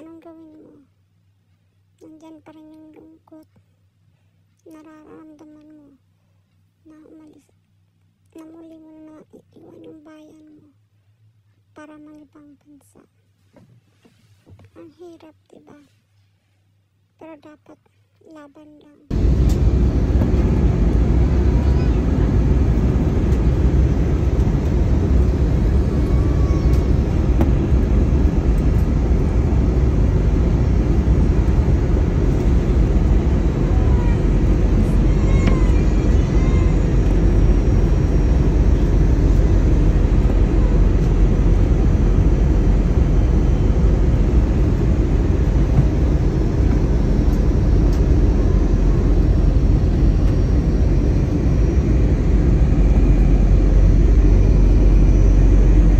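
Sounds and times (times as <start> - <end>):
airliner cabin rushing noise: 19.1 - 55.9.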